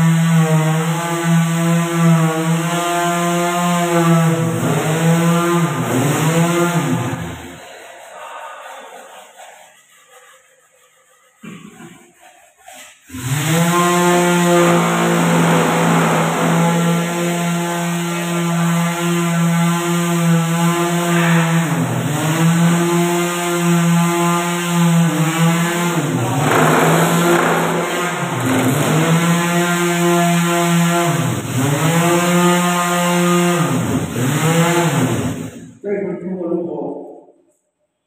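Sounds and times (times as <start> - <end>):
electric sander running: 13.1 - 35.5.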